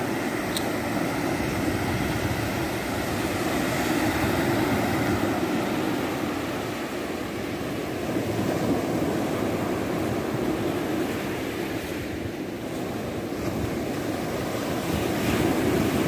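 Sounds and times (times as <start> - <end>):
ocean waves breaking on shore: 0.0 - 16.0
wind rumbling on microphone: 0.0 - 16.0.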